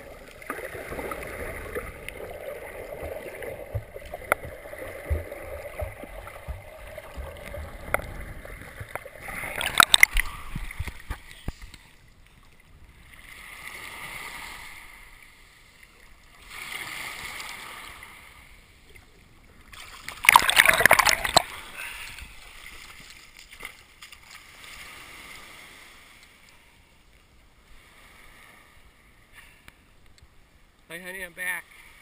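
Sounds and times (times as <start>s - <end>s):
muffled underwater sloshing: 0.0s - 14.0s, 18.8s - 24.1s
water splashing: 0.0s - 14.9s, 19.6s - 24.8s
small underwater clicks: 3.0s - 12.5s, 19.7s - 21.5s
small waves washing up sand: 13.0s - 18.6s, 19.7s - 26.5s.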